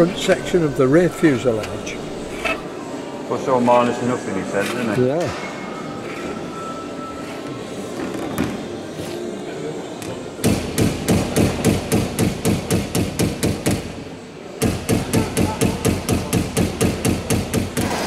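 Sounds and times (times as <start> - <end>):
hammer blows on metal: 14.6 - 18.0.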